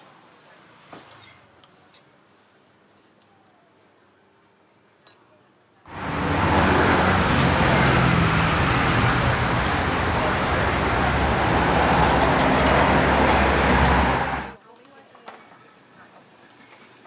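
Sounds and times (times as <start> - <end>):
street traffic: 5.9 - 14.6.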